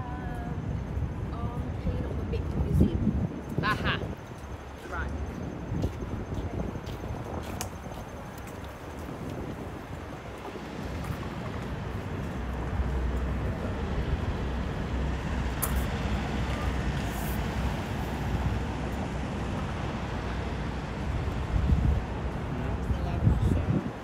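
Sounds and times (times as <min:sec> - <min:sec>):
traffic rumble: 0:00.0 - 0:24.0
sharp click: 0:15.6 - 0:15.9.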